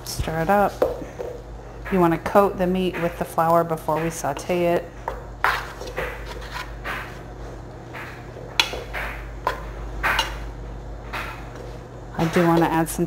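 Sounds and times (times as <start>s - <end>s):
steady low hum: 0.0s - 13.0s
spatula knocking against pot: 0.8s - 7.2s, 7.9s - 10.5s
spatula scraping in metal pot: 5.5s - 7.2s.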